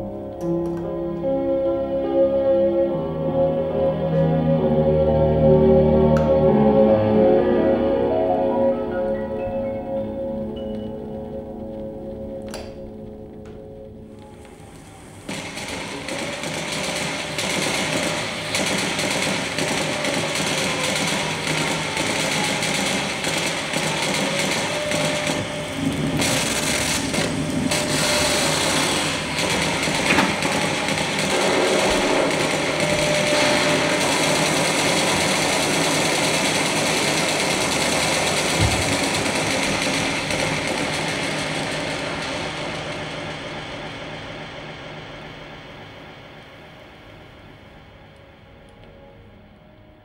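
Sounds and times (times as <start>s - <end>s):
mechanical buzzing: 11.0s - 42.6s.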